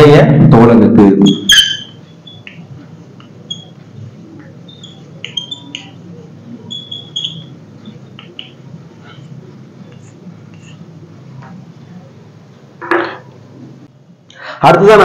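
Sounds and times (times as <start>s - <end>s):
chalk squeaking on blackboard: 1.2s - 4.0s, 4.6s - 10.9s.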